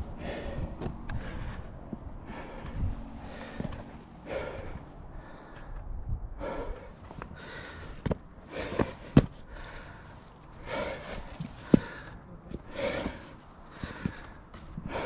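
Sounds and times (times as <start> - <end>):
heavy breathing: 0.0 - 15.0
hands and boots knocking on rock: 8.8 - 9.3.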